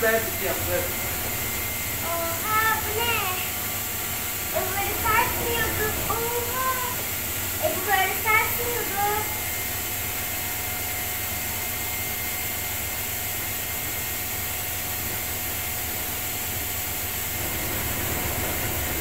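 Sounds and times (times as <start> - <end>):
washing machine spinning: 0.0 - 19.0.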